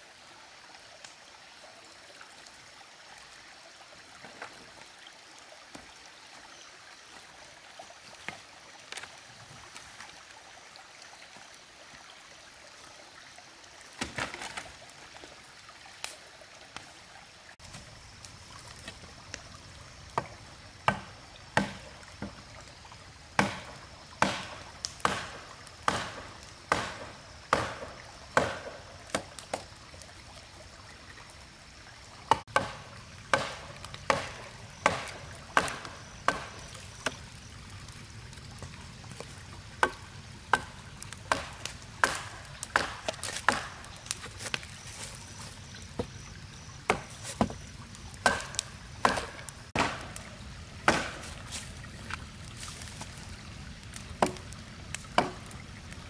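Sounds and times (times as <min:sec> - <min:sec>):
axe chopping wood: 0:20.9 - 0:21.9, 0:23.4 - 0:29.3, 0:32.3 - 0:37.2, 0:39.8 - 0:40.7, 0:41.3 - 0:44.7, 0:46.9 - 0:47.6, 0:48.2 - 0:50.2, 0:50.8 - 0:51.4, 0:54.2 - 0:54.4, 0:55.1 - 0:55.5.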